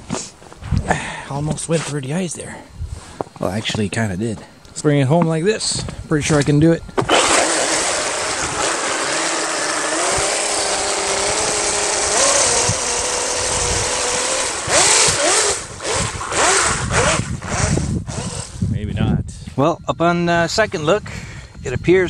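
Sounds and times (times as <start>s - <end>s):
electric motor whine: 5.6s - 18.7s.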